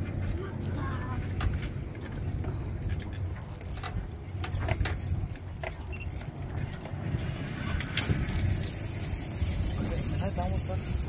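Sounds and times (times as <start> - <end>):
fishing reel clicking: 2.8 - 6.8, 7.4 - 11.0.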